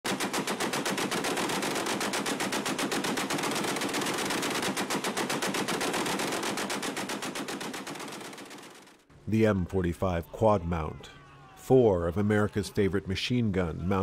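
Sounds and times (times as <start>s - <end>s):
heavy machine guns firing: 0.1s - 9.0s.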